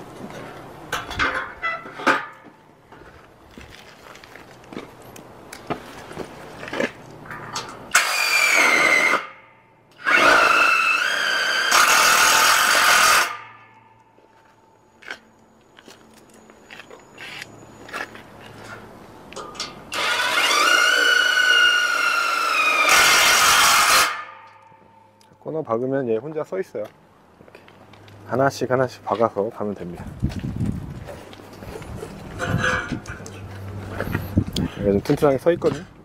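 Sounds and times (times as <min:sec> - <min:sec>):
power driver whining: 0:19.9 - 0:24.3.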